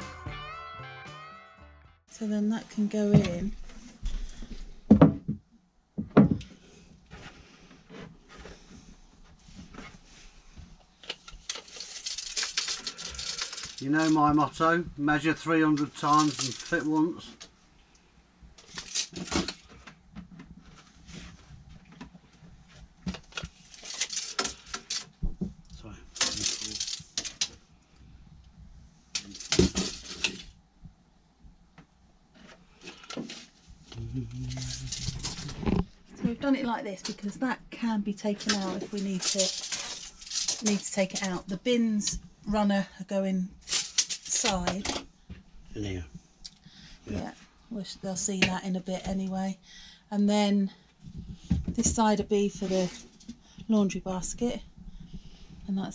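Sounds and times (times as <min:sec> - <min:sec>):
wood panels rubbing and scraping: 0:51.1 - 0:53.3.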